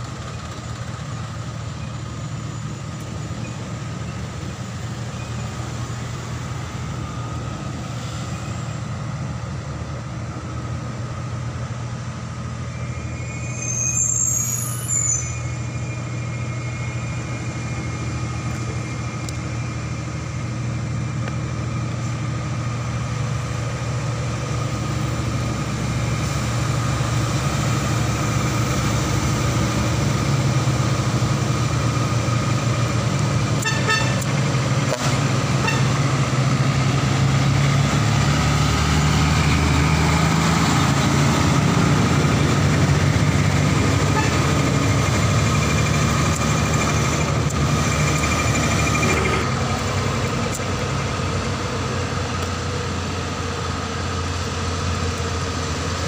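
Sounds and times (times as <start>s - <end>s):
heavy diesel trucks passing: 0.0s - 56.0s
truck horn toots: 33.6s - 34.3s, 35.0s - 36.0s, 44.0s - 44.6s.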